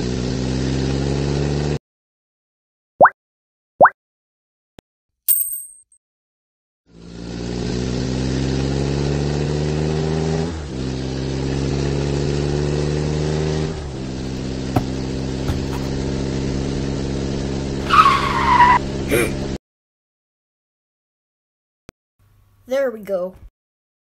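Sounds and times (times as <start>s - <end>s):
race car engine accelerating: 6.9s - 19.6s.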